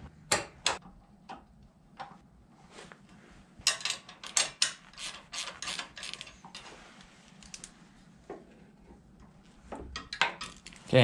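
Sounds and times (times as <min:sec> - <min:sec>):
ratchet wrench clicking: 0:04.3 - 0:06.3.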